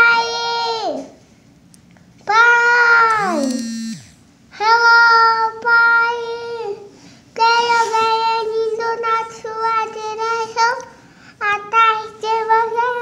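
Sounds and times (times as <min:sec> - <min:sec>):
child singing: 0:07.4 - 0:13.0.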